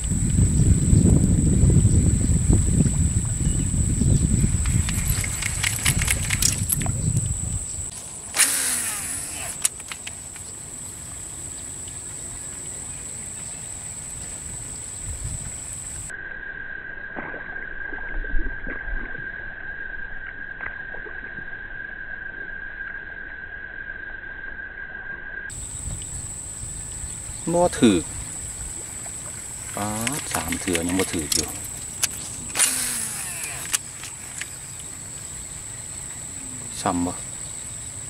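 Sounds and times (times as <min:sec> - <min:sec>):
wind on microphone: 0:00.0 - 0:09.6, 0:14.0 - 0:16.1, 0:25.5 - 0:34.9
high insect drone: 0:00.0 - 0:17.0, 0:22.2 - 0:38.0.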